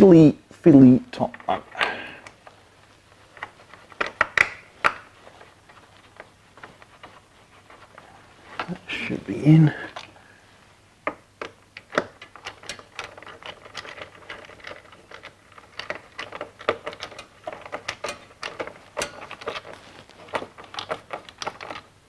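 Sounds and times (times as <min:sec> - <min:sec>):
small clicks and taps on metal: 0:03.3 - 0:05.1, 0:11.0 - 0:21.8.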